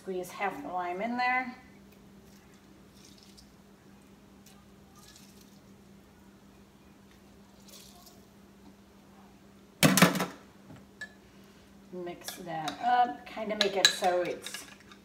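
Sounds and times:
juice dripping: 1.9s - 6.0s.

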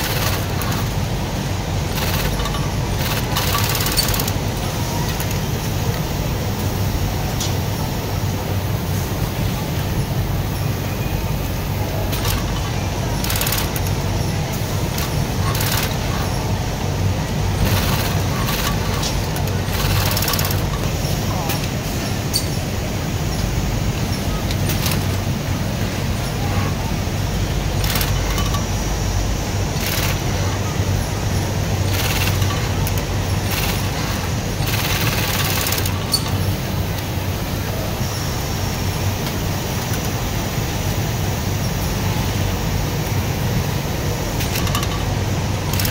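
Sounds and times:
sewing machine stitching: 0.0s - 1.0s, 1.9s - 4.5s, 12.1s - 13.9s, 14.9s - 16.1s, 17.6s - 20.8s, 27.8s - 28.6s, 29.8s - 30.4s, 31.8s - 36.2s
steady low hum: 0.0s - 45.9s.

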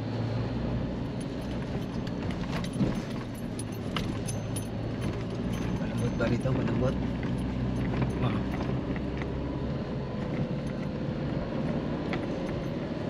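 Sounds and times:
car engine low drone: 0.0s - 13.0s
light rattling clicks: 1.2s - 9.3s.

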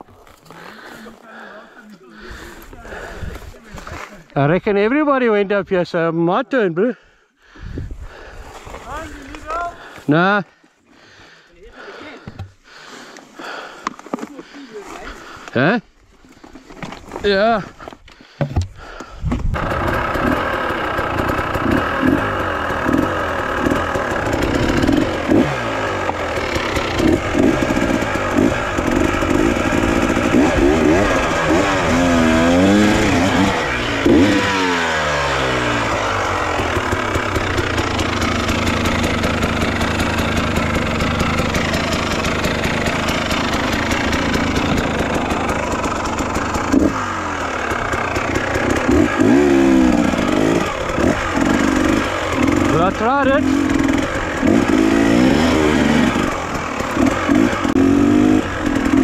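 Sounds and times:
dirt bike engine revving: 18.9s - 59.0s.

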